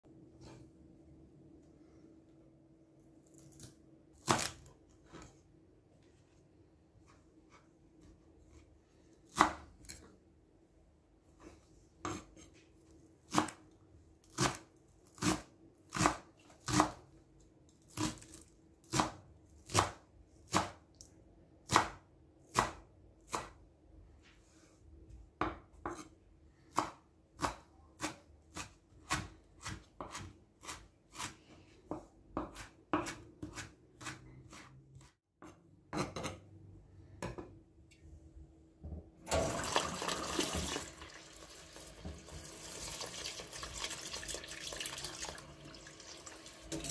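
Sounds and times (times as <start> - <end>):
knife chopping on wooden board: 9.3 - 9.7, 26.7 - 31.3, 31.9 - 36.4
tap water running into bowl: 39.3 - 46.9.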